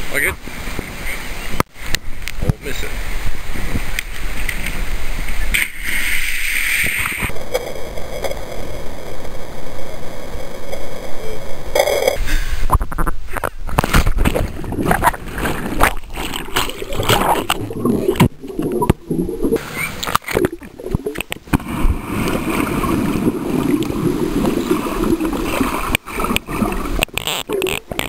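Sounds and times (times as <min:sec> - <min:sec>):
muffled underwater gurgling: 0:14.5 - 0:19.6
knocks and crackles: 0:22.6 - 0:28.0.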